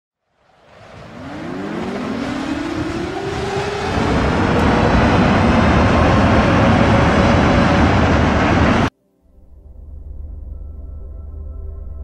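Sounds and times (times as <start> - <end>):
tornado wind roaring: 0.4 - 8.9
warning siren wailing: 0.8 - 8.9.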